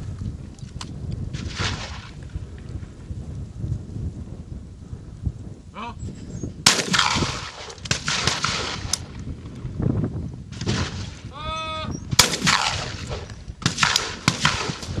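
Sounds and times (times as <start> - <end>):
shotgun shots with echo: 6.6 - 9.0, 12.2 - 15.0.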